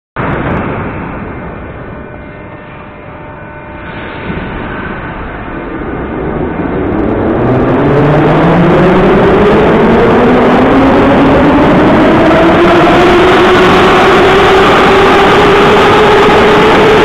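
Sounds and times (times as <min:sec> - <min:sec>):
train wheels running noise: 0:00.2 - 0:07.6.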